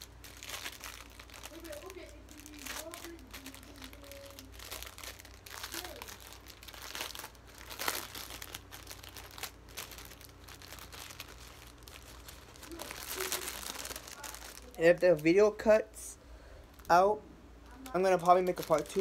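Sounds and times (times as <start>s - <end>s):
plastic bag crinkling: 0.0s - 15.7s, 16.6s - 19.0s.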